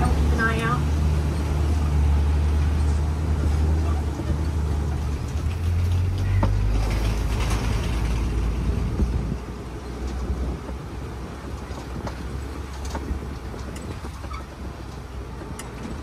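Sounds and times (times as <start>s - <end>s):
truck engine rumble: 0.0s - 16.0s
vehicle knocks and rattles: 3.4s - 10.8s, 11.4s - 16.0s.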